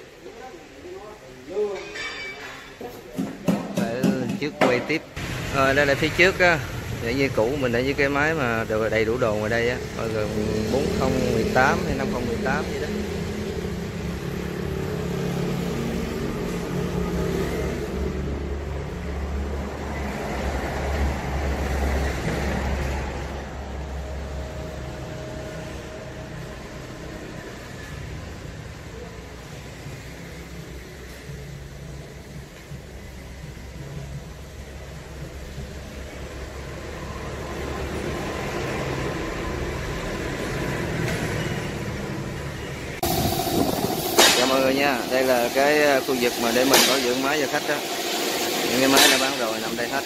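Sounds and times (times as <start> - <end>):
background noise: 0.0 - 14.6
engine rumble: 5.1 - 50.0.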